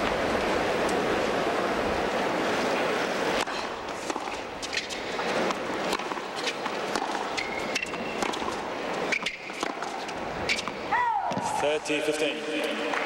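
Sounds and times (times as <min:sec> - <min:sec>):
crowd noise: 0:00.0 - 0:13.0
racket hitting tennis ball: 0:03.3 - 0:11.7
tennis ball bouncing: 0:03.3 - 0:11.7
sneaker squeaks: 0:03.5 - 0:11.4.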